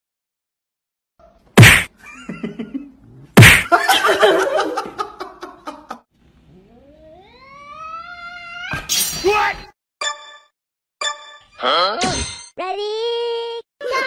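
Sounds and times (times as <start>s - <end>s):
cat yowling: 6.6s - 8.9s.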